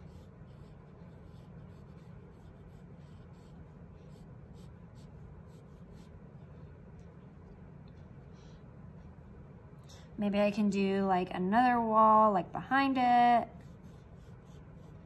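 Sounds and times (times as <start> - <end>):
pencil scratching on paper: 0.0 - 6.2, 13.6 - 15.0
low steady hum: 0.0 - 15.0.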